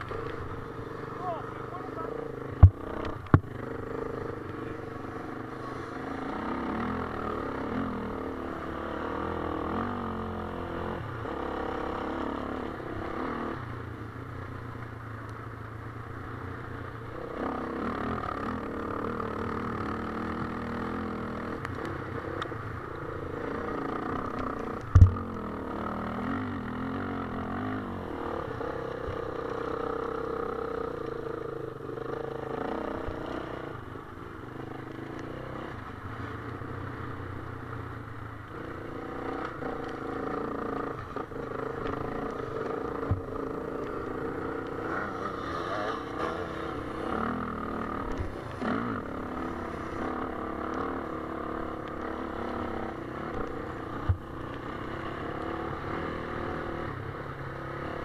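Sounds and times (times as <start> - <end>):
dirt bike engine revving: 0.0 - 13.7, 17.0 - 37.0, 38.5 - 58.0.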